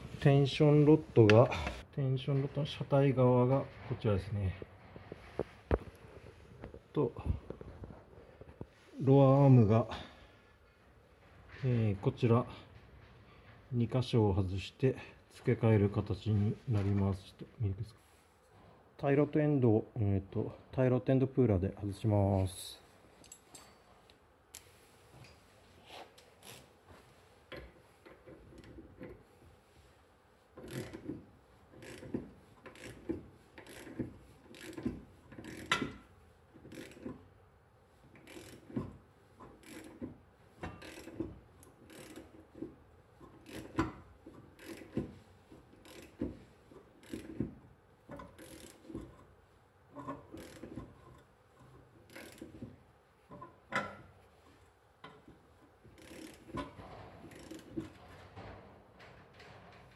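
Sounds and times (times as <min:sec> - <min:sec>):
ratchet wrench clicking: 0:30.6 - 0:31.1, 0:31.8 - 0:36.0, 0:36.7 - 0:37.2, 0:38.2 - 0:38.8, 0:39.5 - 0:40.0, 0:40.8 - 0:41.2, 0:41.8 - 0:42.4, 0:44.6 - 0:45.0, 0:45.8 - 0:46.2, 0:47.0 - 0:47.4, 0:48.2 - 0:49.0, 0:50.3 - 0:50.8, 0:52.1 - 0:52.6, 0:56.0 - 0:57.8.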